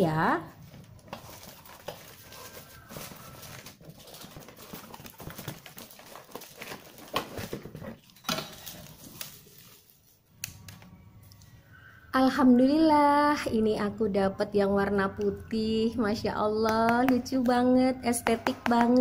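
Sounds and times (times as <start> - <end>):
cardboard rustling and scraping: 0.6 - 10.0.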